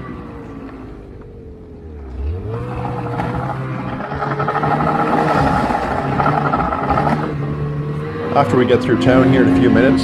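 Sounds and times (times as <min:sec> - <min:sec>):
snowmobile engine droning: 0:00.0 - 0:10.0
track and ride noise: 0:00.0 - 0:10.0.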